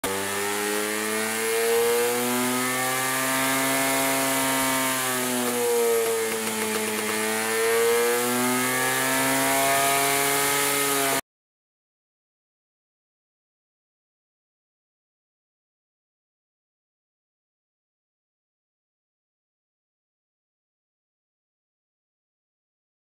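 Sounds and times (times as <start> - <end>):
two-stroke engine running: 0.0 - 11.2.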